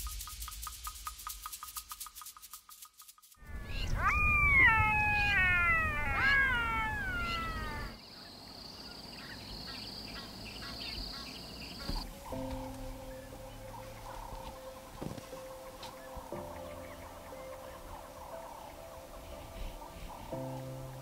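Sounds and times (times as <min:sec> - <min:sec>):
swooping animal calls: 0:03.4 - 0:08.0
high insect drone: 0:03.4 - 0:21.0.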